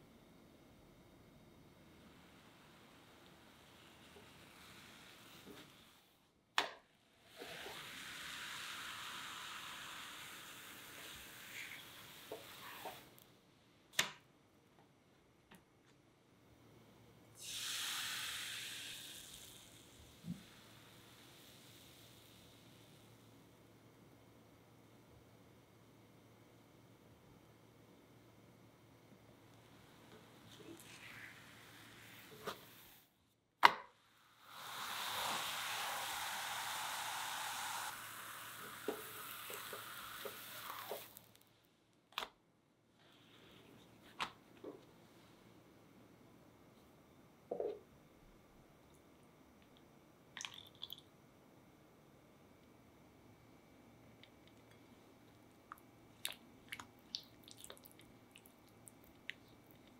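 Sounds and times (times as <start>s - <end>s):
crepe sizzling in a pan: 2.0s - 6.1s, 7.1s - 13.2s, 17.4s - 23.4s, 29.9s - 33.1s, 34.1s - 41.4s
batter sizzling loudly: 7.2s - 13.2s, 17.4s - 23.3s, 29.8s - 33.1s, 34.1s - 41.4s.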